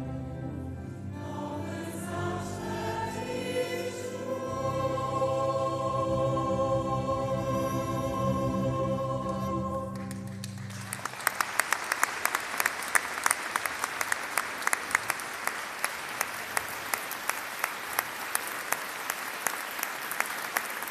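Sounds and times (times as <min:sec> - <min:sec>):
choir and folk band chord: 0:00.0 - 0:10.8
audience applause: 0:10.0 - 0:20.9
close loud hand claps: 0:10.0 - 0:20.9.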